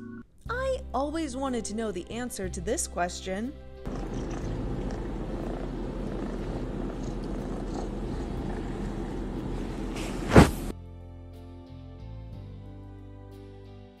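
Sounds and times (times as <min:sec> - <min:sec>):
kitten purring: 0:03.9 - 0:10.7
loud thump: 0:10.0 - 0:10.7.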